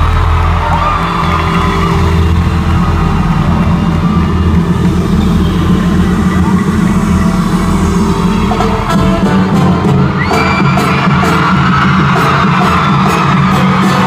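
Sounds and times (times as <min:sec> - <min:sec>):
live concert music with heavy bass: 0:00.0 - 0:14.0.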